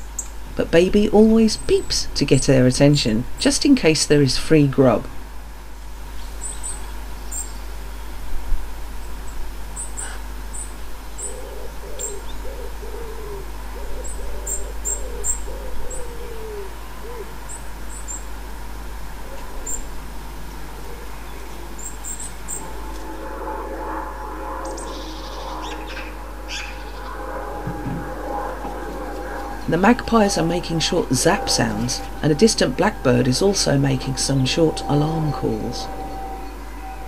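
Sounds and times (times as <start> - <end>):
fledgling robin peeping: 9.8 - 18.3, 19.3 - 20.0
pigeon cooing: 11.2 - 17.4, 19.2 - 20.0, 20.6 - 22.3.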